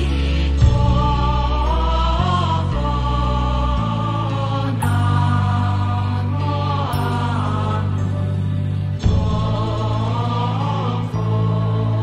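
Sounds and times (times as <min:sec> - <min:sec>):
low steady musical backing: 0:00.0 - 0:12.0.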